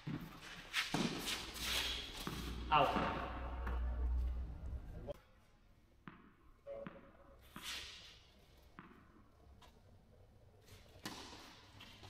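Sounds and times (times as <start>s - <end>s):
shoes scraping on clay: 0.2s - 2.7s
tennis ball bouncing on clay: 6.0s - 7.1s.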